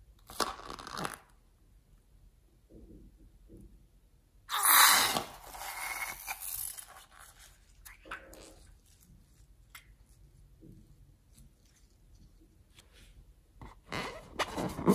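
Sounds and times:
wet slime rush from balloon: 0:04.5 - 0:06.7
soft squelch: 0:05.0 - 0:13.3.

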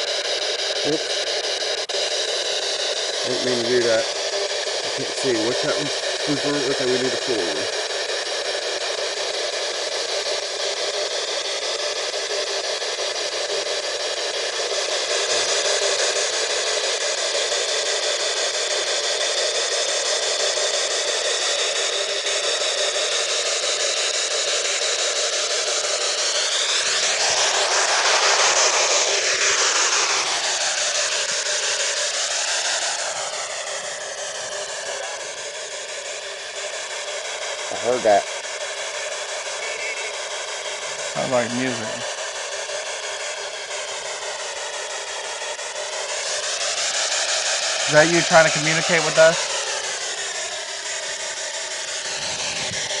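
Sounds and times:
radio static hiss with warbling glides: 0:03.2 - 0:07.8, 0:39.4 - 0:42.1, 0:47.9 - 0:49.4
short warbling radio fragment: 0:39.5 - 0:40.2, 0:52.1 - 0:53.0.

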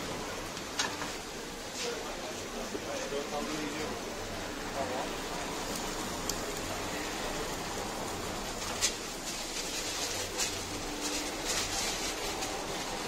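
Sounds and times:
grill hissing: 0:00.0 - 0:13.0
paper wrappers rustling: 0:08.0 - 0:13.0.

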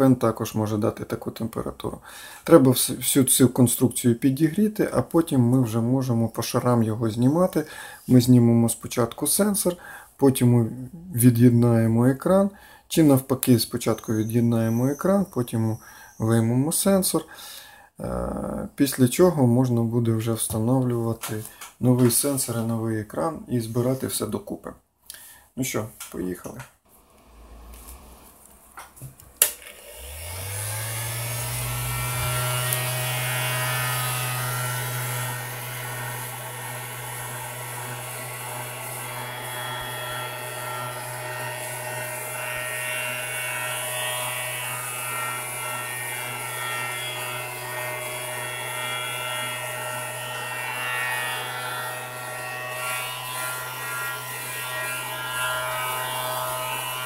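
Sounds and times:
heat gun fan humming: 0:29.4 - 0:42.4.

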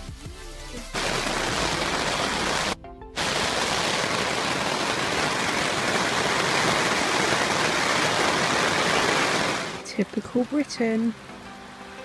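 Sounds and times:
heavy rain hissing: 0:00.7 - 0:12.0.

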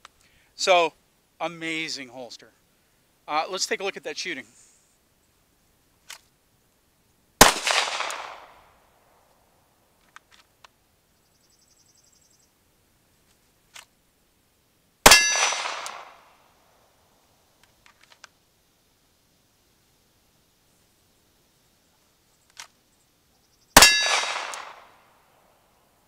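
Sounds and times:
pistol shots ringing: 0:07.4 - 0:08.7, 0:15.1 - 0:16.2, 0:23.8 - 0:24.9
faint clicks: 0:17.6 - 0:18.4, 0:21.9 - 0:22.8.

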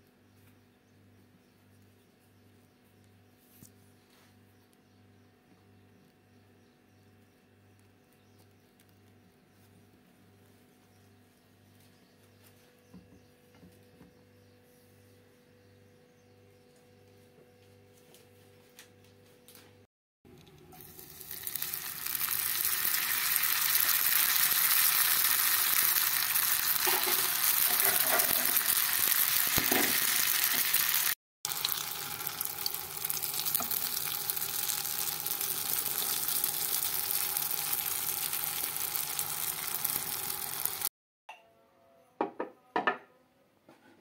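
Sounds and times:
pastry frying in hot oil: 0:20.7 - 0:40.9.

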